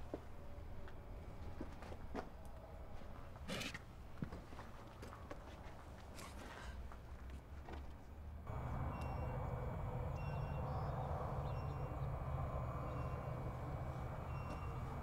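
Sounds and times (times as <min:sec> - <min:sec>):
steady low hum: 0:08.4 - 0:15.0.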